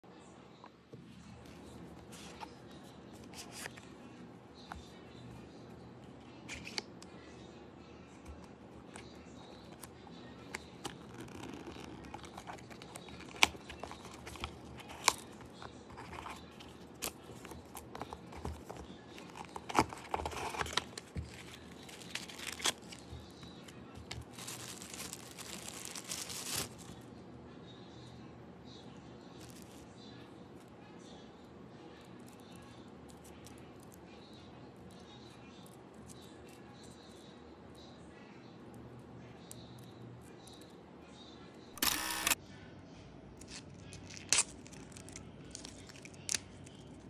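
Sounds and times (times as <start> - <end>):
packaging clicks and taps: 10.5 - 23.3
packaging crinkling: 10.5 - 27.0
packaging tearing: 10.8 - 16.4, 17.0 - 23.1, 24.1 - 26.9.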